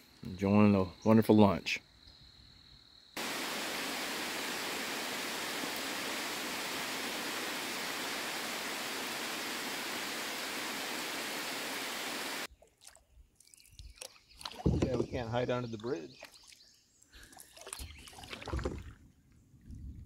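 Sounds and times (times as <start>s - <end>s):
rain falling on a river: 3.2s - 12.5s.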